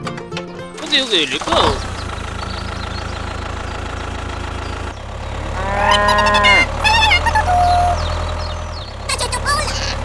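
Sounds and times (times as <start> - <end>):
tractor engine drone: 0.3 - 10.0
cow mooing: 5.4 - 6.7.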